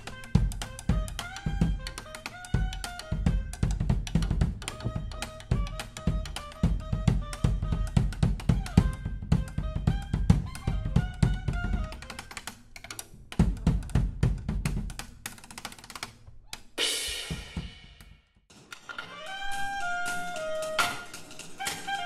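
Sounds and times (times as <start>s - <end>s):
drum kit played hard: 0.0s - 12.3s, 13.4s - 15.0s, 16.8s - 18.1s, 19.5s - 22.0s
held instrument notes: 0.0s - 12.9s, 19.0s - 22.0s.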